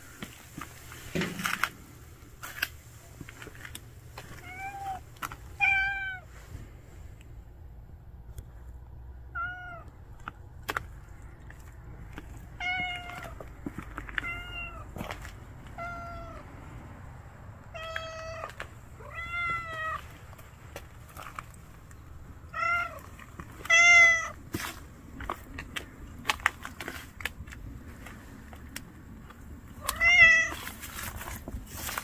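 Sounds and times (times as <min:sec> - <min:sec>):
cat meowing: 0:04.4 - 0:06.3, 0:09.3 - 0:09.9, 0:12.6 - 0:13.4, 0:14.2 - 0:15.0, 0:15.7 - 0:16.4, 0:17.7 - 0:20.1, 0:22.5 - 0:24.4, 0:29.8 - 0:30.6.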